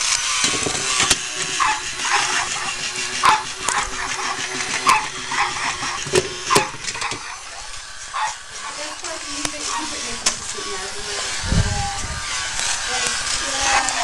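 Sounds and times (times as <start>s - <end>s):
high dog-like yips: 1.5s - 2.6s, 3.2s - 5.7s, 6.5s - 8.4s.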